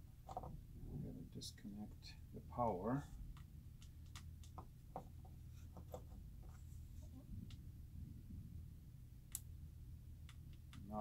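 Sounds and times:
low steady hum: 0.0s - 11.0s
faint clicks and scratching: 0.2s - 8.5s.

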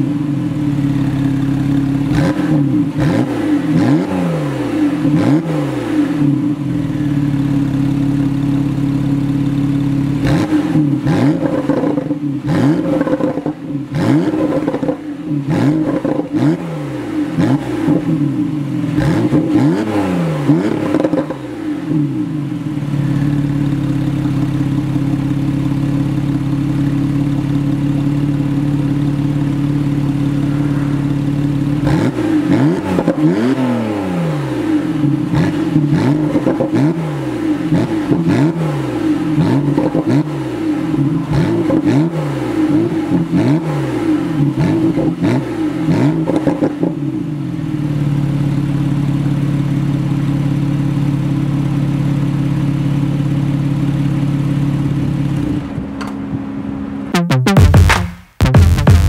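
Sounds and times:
car engine idling: 0.0s - 4.0s, 4.9s - 19.6s, 20.4s - 36.6s, 47.0s - 57.1s
car engine revving: 0.0s - 24.6s, 27.9s - 48.8s.

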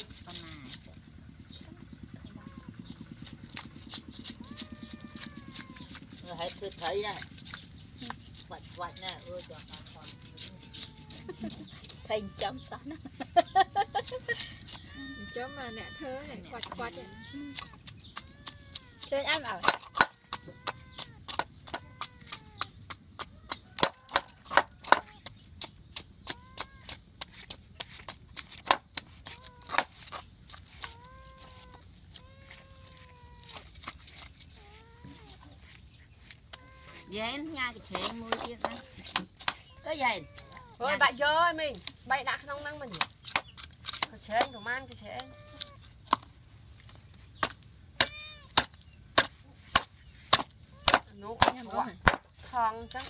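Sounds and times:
chickens calling: 10.0s - 24.8s.

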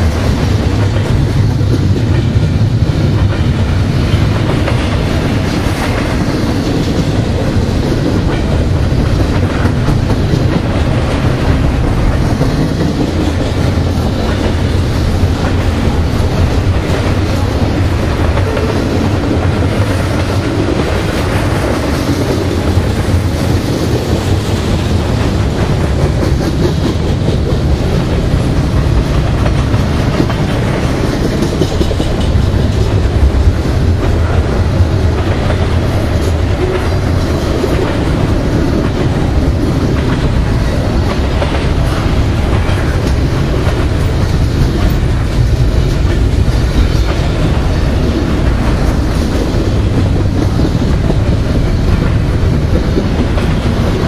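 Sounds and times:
train wheels rumbling on rail: 0.0s - 54.0s
wheels clicking over rail joints: 0.0s - 54.0s.

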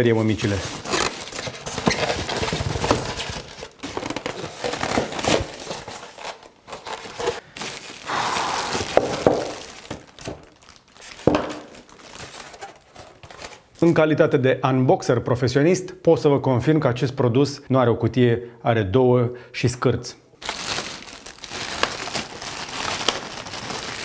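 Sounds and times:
packaging crinkling: 0.4s - 13.9s, 20.4s - 24.0s.

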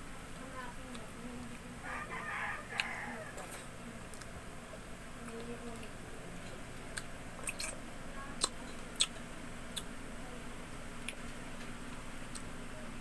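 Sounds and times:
person chewing food: 2.7s - 4.4s, 6.4s - 7.8s
wet mouth clicks and smacks: 6.9s - 7.8s.

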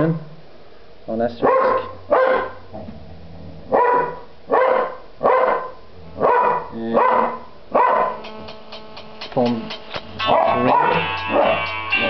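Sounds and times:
dog barking: 1.4s - 2.7s, 3.7s - 8.2s, 10.3s - 11.6s.

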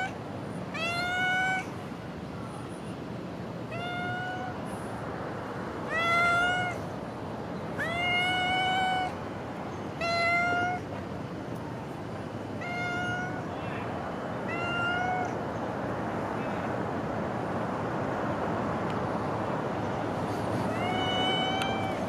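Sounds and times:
cat meowing: 0.0s - 1.8s, 3.7s - 4.6s, 5.9s - 6.8s, 7.8s - 9.2s, 10.0s - 10.9s, 12.6s - 13.5s, 14.4s - 15.4s, 20.7s - 22.0s.

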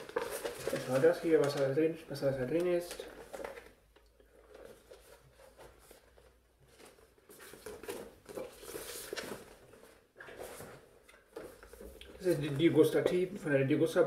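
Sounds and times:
paper rustling and crinkling: 0.0s - 13.3s.

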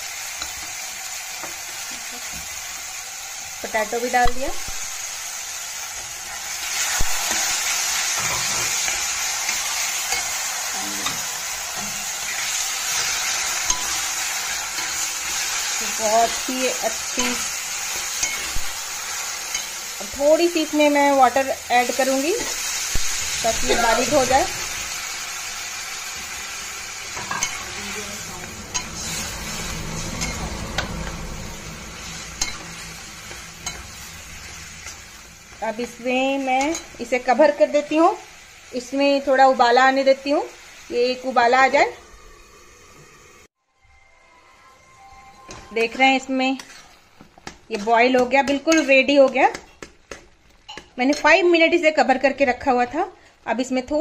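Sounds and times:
vegetables sizzling in a pan: 0.0s - 43.6s, 44.4s - 54.0s
metal spatula stirring and mashing: 5.8s - 22.8s, 25.8s - 37.9s, 45.5s - 51.6s
spatula scraping pan: 45.5s - 51.3s
spatula clinking on pan: 50.7s - 51.3s.

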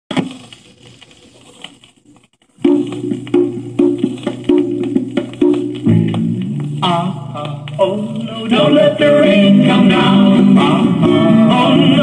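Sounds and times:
folk-pop song on vinyl: 0.1s - 12.0s
sharp percussive strikes: 2.6s - 6.7s.

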